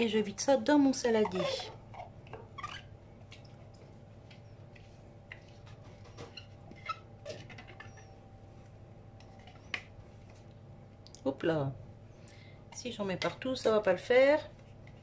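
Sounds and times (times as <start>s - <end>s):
faint steady hum: 0.0s - 15.0s
spatula scraping plastic bowl: 1.0s - 2.8s
small squeaks: 1.1s - 3.0s, 5.9s - 8.2s.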